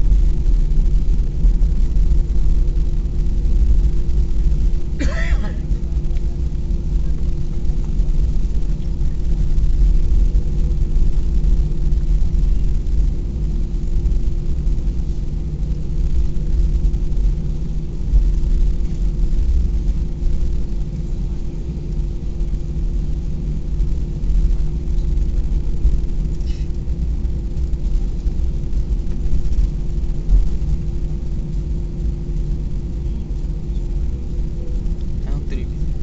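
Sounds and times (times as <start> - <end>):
constant cabin hum: 0.0 - 36.0
low rumble of engines and wheels: 0.0 - 36.0.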